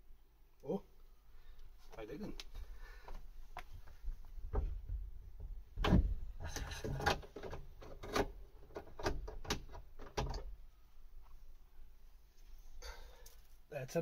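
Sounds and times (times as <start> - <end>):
plastic and metal knocks and rattles: 4.4 - 10.5.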